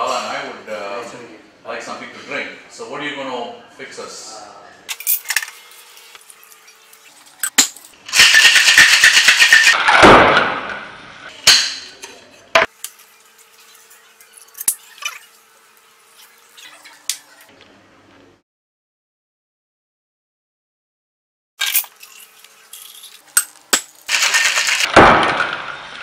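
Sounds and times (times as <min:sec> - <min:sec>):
ice rattling in metal shaker: 0:08.1 - 0:09.8, 0:24.0 - 0:24.9.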